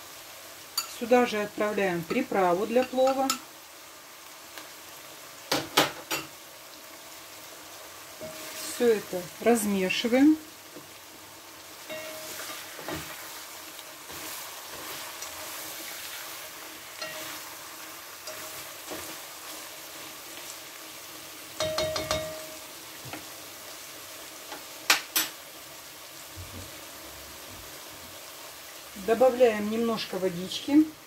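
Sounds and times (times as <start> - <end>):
meat and vegetables sizzling: 0.0 - 31.0
spatula scraping and clinking pot: 17.0 - 17.4.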